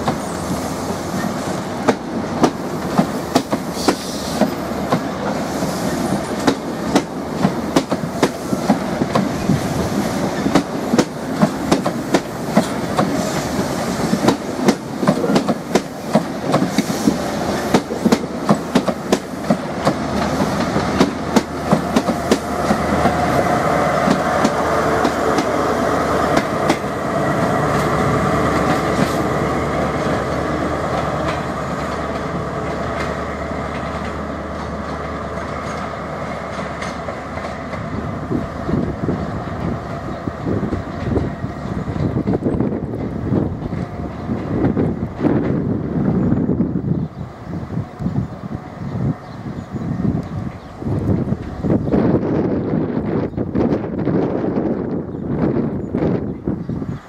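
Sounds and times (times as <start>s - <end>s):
train wheels clattering over rail joints: 1.2s - 23.4s, 26.2s - 27.0s, 30.3s - 38.0s.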